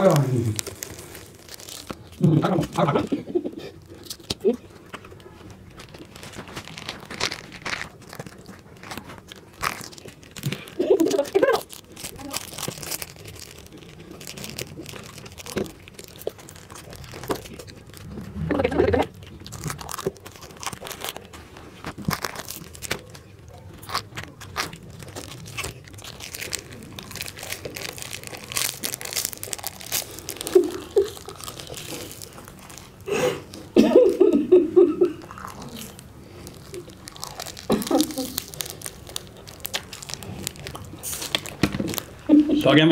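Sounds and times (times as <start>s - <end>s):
muffled vocal sounds: 0.0s - 0.7s
crunching and chewing: 0.0s - 34.2s, 35.0s - 42.9s
plastic wrappers crinkling and tearing: 0.0s - 42.9s.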